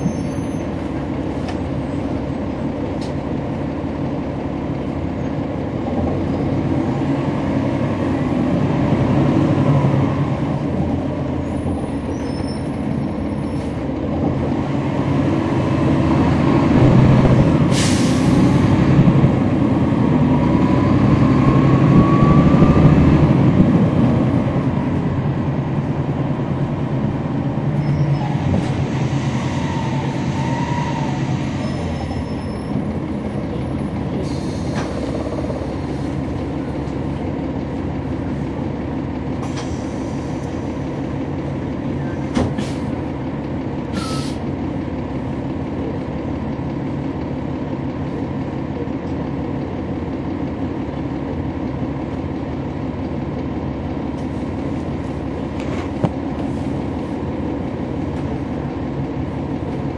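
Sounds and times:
bus diesel engine running: 0.0s - 59.9s
short hiss: 44.0s - 44.4s.

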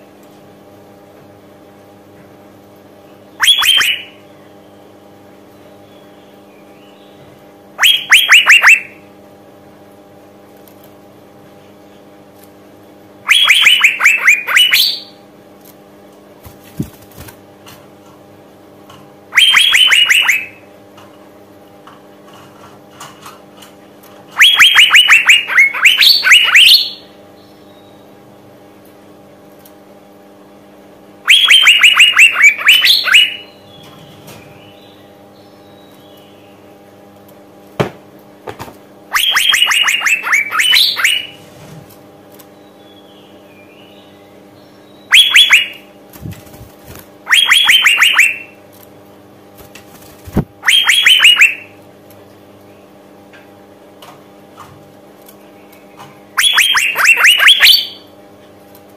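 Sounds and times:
faint steady hum: 0.0s - 58.9s
bird calling sharp rapid notes: 3.4s - 4.2s, 7.8s - 9.0s, 13.2s - 15.2s, 19.3s - 20.6s, 24.4s - 27.2s, 31.2s - 33.6s, 39.1s - 41.4s, 45.0s - 45.9s, 46.9s - 48.6s, 50.2s - 51.8s, 56.4s - 58.1s.

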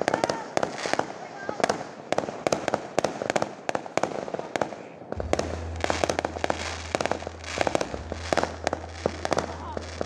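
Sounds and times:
fireworks bangs and crackles: 0.0s - 10.0s
low rumble: 5.2s - 10.0s.

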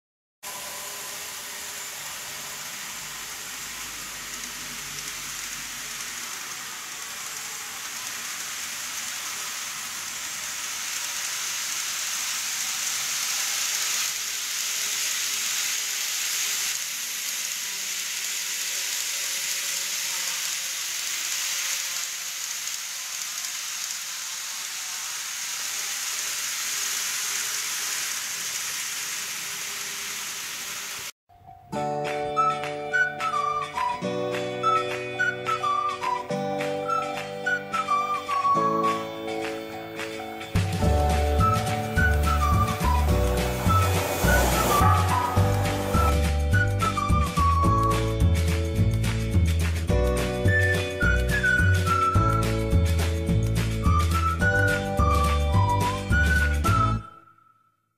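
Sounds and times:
faint motor whine: 0.4s - 31.1s, 40.6s - 46.7s
model train wheels rattling: 2.2s - 29.9s.

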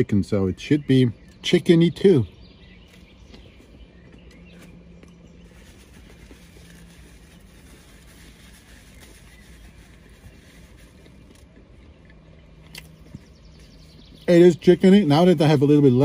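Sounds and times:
background hum: 0.0s - 16.0s
man chewing food: 2.8s - 14.3s.

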